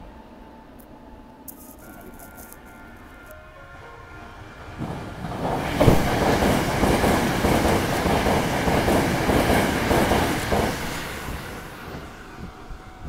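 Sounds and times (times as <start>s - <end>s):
train wheels clattering: 4.8s - 12.1s.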